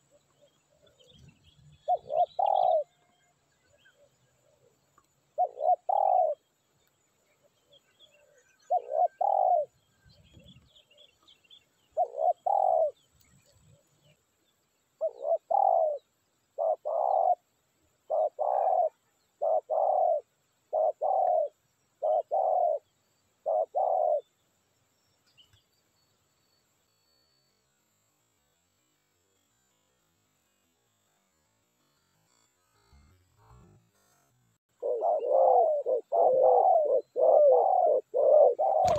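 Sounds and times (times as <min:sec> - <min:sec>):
dove cooing: 0:00.0 - 0:03.0, 0:04.0 - 0:06.4, 0:07.7 - 0:11.1, 0:11.9 - 0:13.0, 0:15.0 - 0:24.3, 0:34.7 - 0:38.9.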